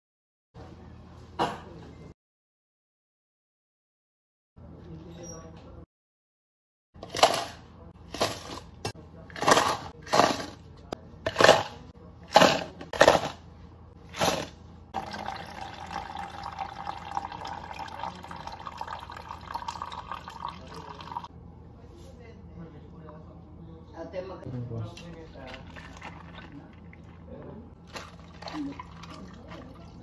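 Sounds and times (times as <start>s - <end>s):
ice clattering into plastic cups: 14.2s - 21.3s, 25.4s - 27.2s, 27.8s - 30.0s
coffee pouring over ice: 15.0s - 21.3s, 25.4s - 30.0s.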